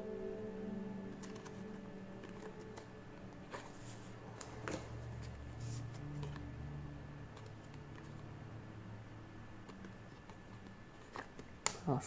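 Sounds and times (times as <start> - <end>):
low steady hum: 0.0 - 12.0
cards rustling in plastic sleeves: 1.1 - 6.5, 9.6 - 12.0.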